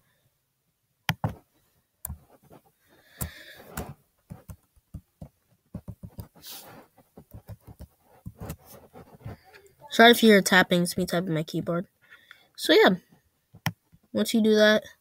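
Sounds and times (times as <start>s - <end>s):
laptop keyboard typing: 1.1s - 1.4s, 3.1s - 6.4s, 7.2s - 8.7s.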